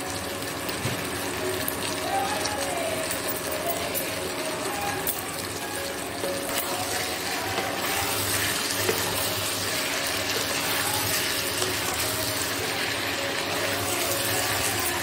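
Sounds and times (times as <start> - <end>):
sauce sizzling and bubbling: 0.0 - 15.0.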